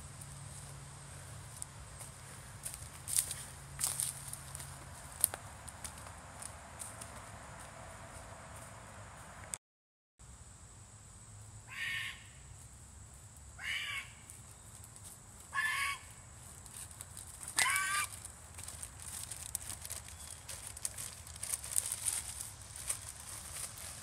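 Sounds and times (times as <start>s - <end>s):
crow cawing: 11.7s - 12.4s, 13.6s - 14.3s, 15.5s - 16.2s, 17.6s - 18.2s
faint crackling rustle: 16.4s - 24.0s.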